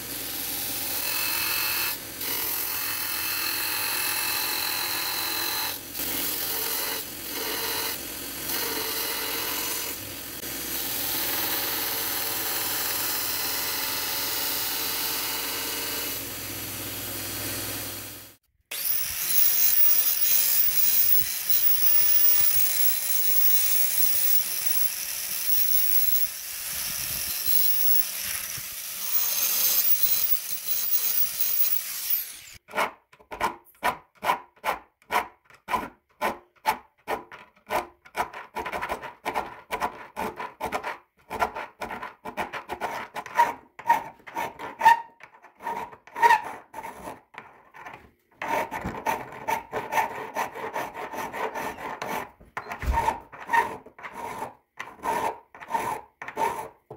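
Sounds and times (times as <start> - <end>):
belt grinder grinding steel: 0.0 - 18.1, 18.7 - 32.6
angle grinder cutting steel: 0.0 - 32.6
hand file rasping on metal: 34.2 - 47.6, 48.4 - 56.9.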